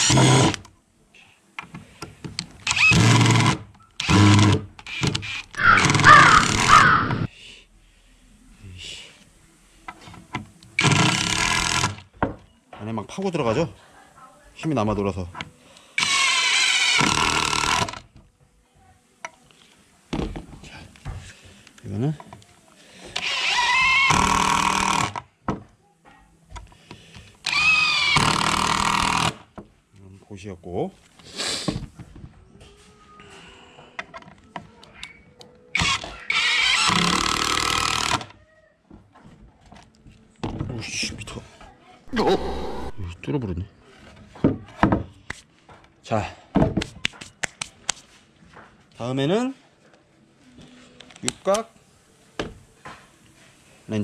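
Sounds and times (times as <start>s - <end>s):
impact drivers driving screws into wood: 0.0s - 0.7s, 2.4s - 7.3s, 10.8s - 12.1s, 16.0s - 18.1s, 23.1s - 25.3s, 27.4s - 29.5s, 35.8s - 38.4s.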